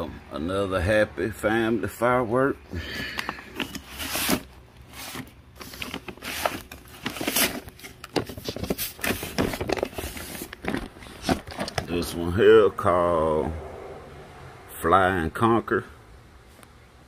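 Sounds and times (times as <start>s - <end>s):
cardboard scraping and rustling: 3.5s - 12.1s.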